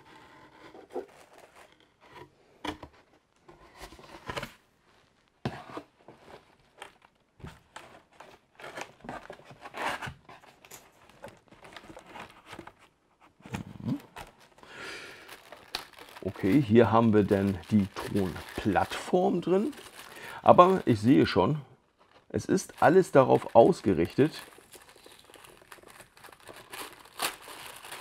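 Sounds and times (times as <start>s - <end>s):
cardboard rustling and scraping: 0.0s - 14.6s, 15.3s - 21.4s.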